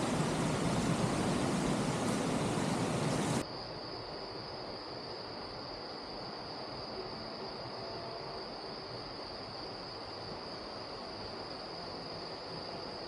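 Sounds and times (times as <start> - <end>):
loud rushing noise: 0.0 - 3.4
high insect drone: 0.0 - 13.0.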